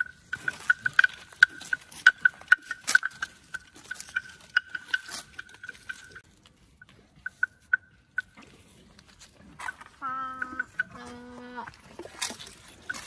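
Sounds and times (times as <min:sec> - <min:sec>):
wooden bell clonking: 0:00.0 - 0:06.2.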